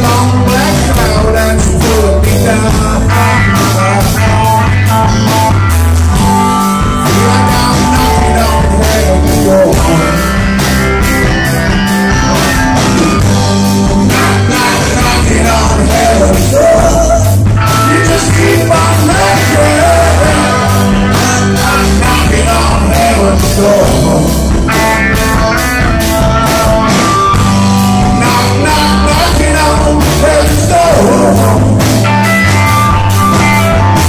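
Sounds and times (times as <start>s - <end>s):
man singing: 0.0s - 4.9s, 6.8s - 10.4s, 14.0s - 24.8s, 28.0s - 32.0s
drum kit beating: 0.0s - 34.0s
electric guitars: 0.0s - 34.0s.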